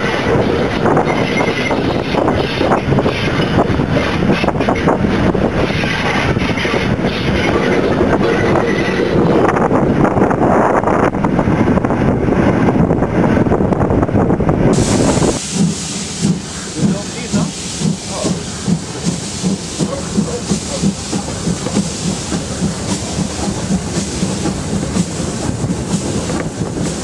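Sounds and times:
steam locomotive running: 0.0 - 27.0
steam hiss: 14.7 - 27.0.

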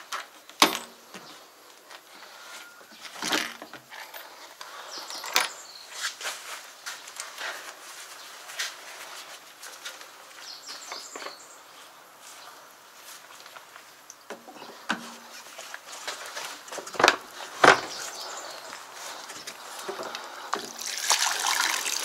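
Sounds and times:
clicks knocks and scraping: 14.3 - 18.6.

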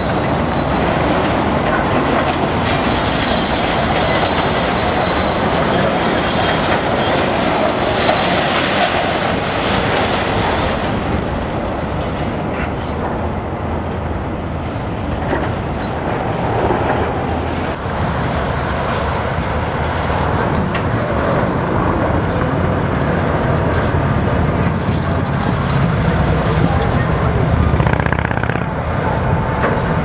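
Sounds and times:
faint high metallic squeal: 2.8 - 11.0
excavator engine running under load: 19.8 - 30.0.

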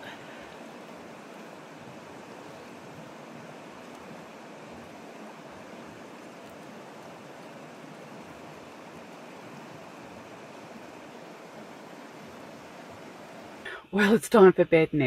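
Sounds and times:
rushing water: 0.0 - 13.7.

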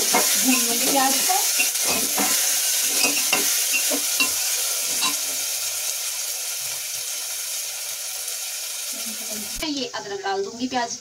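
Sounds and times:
metal spoon scraping and stirring: 0.0 - 5.4
onions sizzling in hot oil: 0.0 - 11.0.

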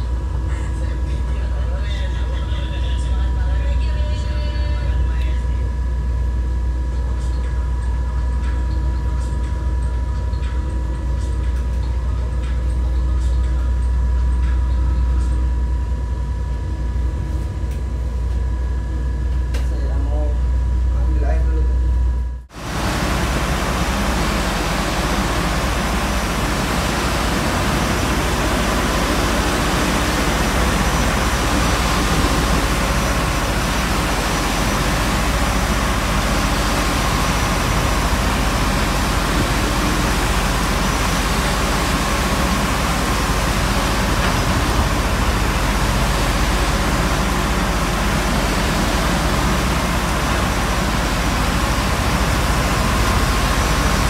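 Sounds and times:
seawater washing across deck: 22.5 - 54.0.

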